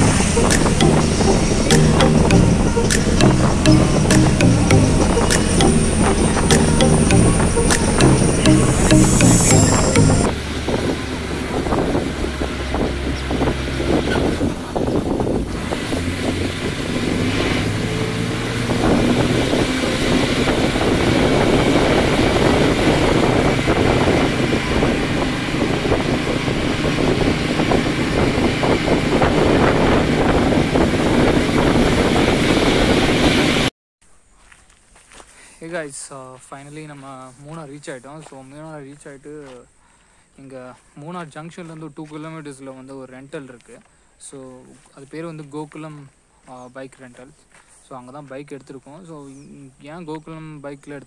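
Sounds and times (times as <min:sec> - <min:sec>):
bus engine running: 0:00.0 - 0:01.7, 0:10.4 - 0:33.7
road noise: 0:00.0 - 0:08.5, 0:09.5 - 0:33.7
wind rushing over microphone: 0:10.5 - 0:33.7.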